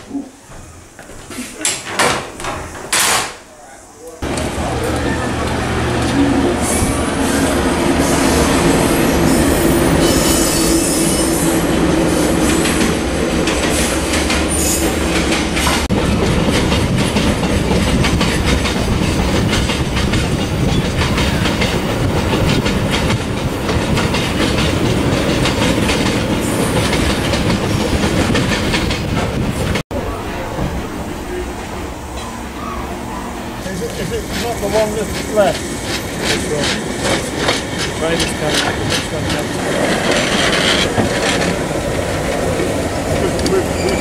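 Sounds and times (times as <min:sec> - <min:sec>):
diesel locomotive engine humming: 0:04.2 - 0:44.0
high wheel squeal: 0:04.7 - 0:12.6, 0:43.4 - 0:44.0
wagons clickety-clack on rail joints: 0:12.4 - 0:29.8, 0:33.6 - 0:44.0.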